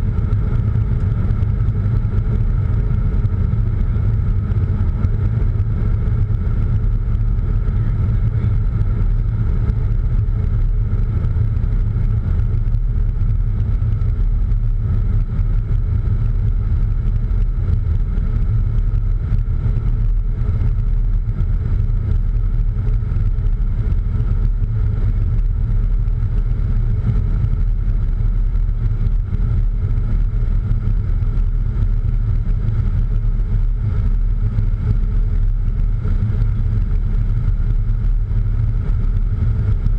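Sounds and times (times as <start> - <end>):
faint steady hum: 0.0 - 39.9
jet cockpit rumble: 0.0 - 39.9.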